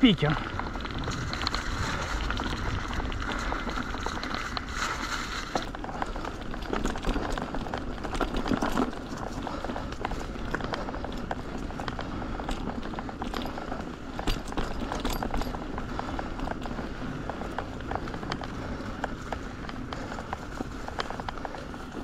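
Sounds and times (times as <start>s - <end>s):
bike tyres rushing on trail: 0.0s - 22.0s
stones and bike rattling: 0.0s - 22.0s.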